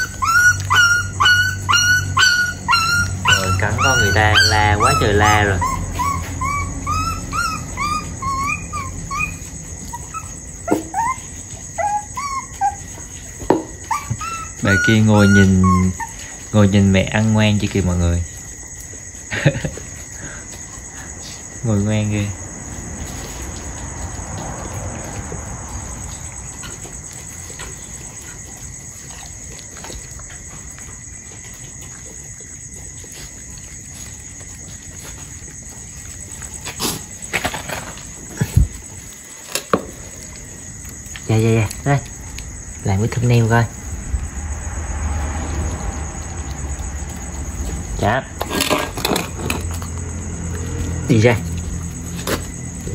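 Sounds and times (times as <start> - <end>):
puppy whimpering: 0.0 - 16.8
puppy eating from metal pan: 0.0 - 20.0, 21.6 - 43.9, 45.7 - 52.9
crickets trilling: 0.0 - 52.9.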